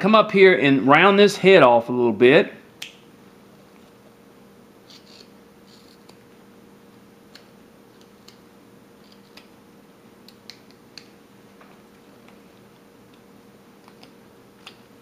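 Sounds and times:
knife scraping wood: 4.8 - 6.2.

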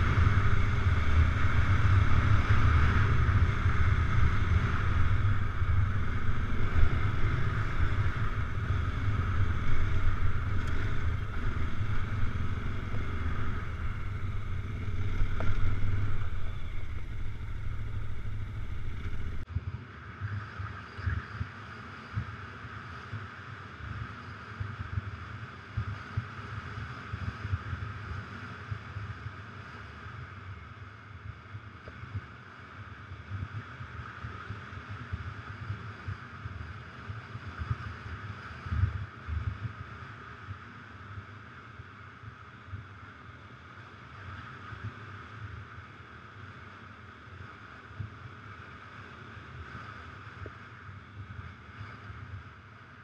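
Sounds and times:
motorcycle engine running: 0.0 - 19.4
wind rumble: 0.0 - 20.5.

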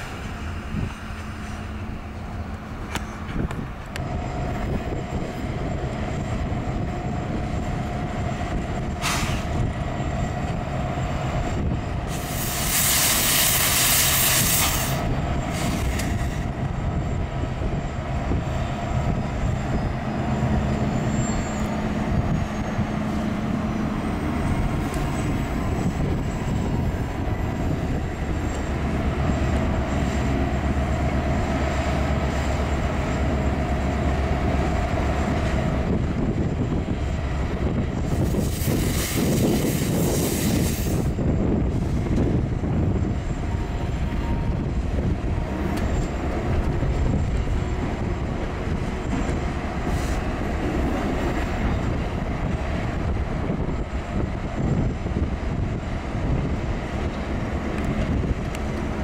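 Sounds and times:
diesel locomotive engine drone: 0.0 - 59.0
wheels rumbling on rail: 0.0 - 59.0
loud air hiss: 9.0 - 9.6, 12.1 - 16.5, 38.0 - 41.2.

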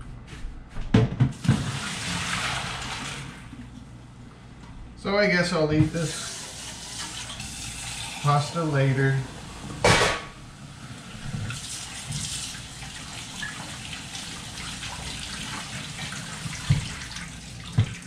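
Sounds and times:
tap running into metal sink: 17.6 - 18.0.

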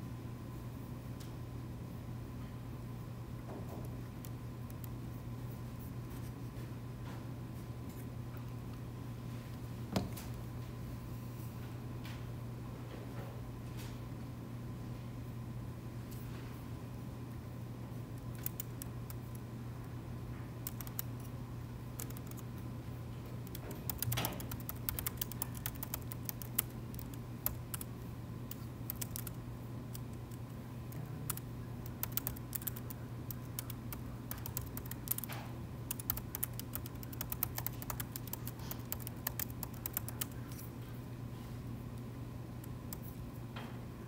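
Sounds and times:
steady low hum: 0.0 - 44.0
laptop keyboard typing: 18.2 - 19.4, 20.6 - 21.3, 21.9 - 22.5, 23.4 - 40.6.

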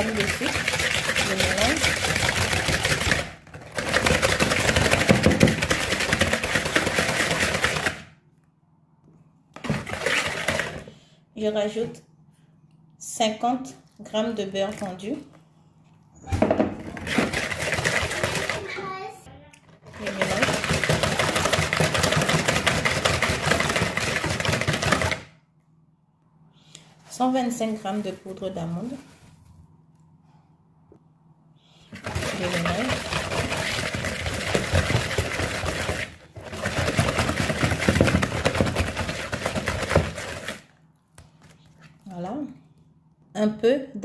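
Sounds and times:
wire whisk beating in a bowl: 0.0 - 7.9, 17.0 - 18.8, 20.0 - 25.2, 32.0 - 40.6.

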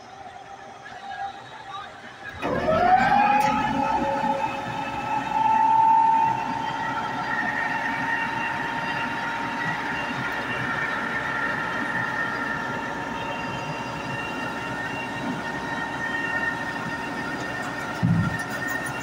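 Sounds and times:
concrete pump whining and rumbling: 0.0 - 19.0.

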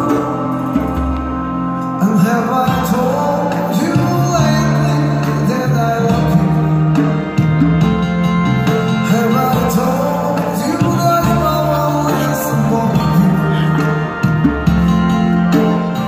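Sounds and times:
man singing into microphone: 0.0 - 1.0, 1.8 - 7.3, 8.9 - 14.4
backing music with bass: 0.0 - 16.0.

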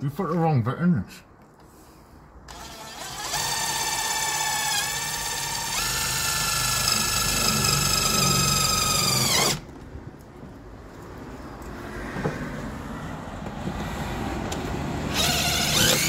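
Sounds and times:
cordless drill driving screw: 2.5 - 9.6, 15.1 - 16.0.

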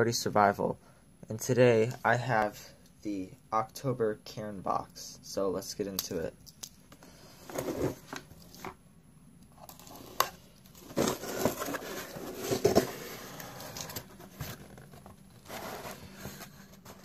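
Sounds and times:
rustling and crinkling: 7.3 - 8.8, 9.6 - 17.0
cardboard lid scraping: 7.4 - 8.8, 9.7 - 17.0.

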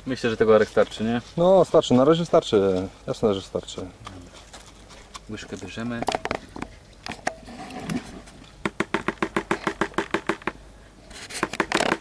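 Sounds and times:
rustle: 0.0 - 12.0.

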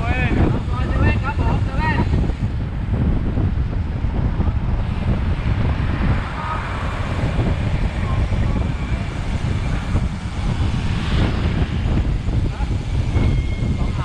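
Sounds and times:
road and traffic noise: 0.0 - 14.0
wind buffeting microphone: 0.0 - 14.0.

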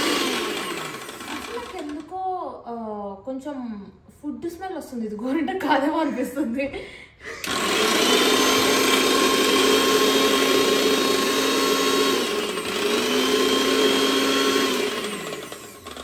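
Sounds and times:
mixer grinder motor whine: 0.0 - 2.1, 7.3 - 16.0.

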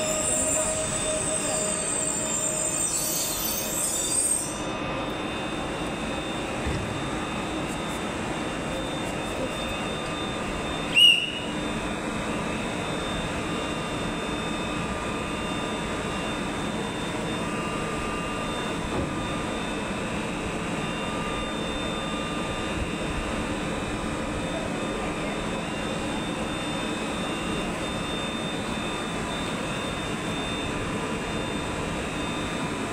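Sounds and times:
electric train running: 0.0 - 32.9
faint steady whines: 0.0 - 32.9.

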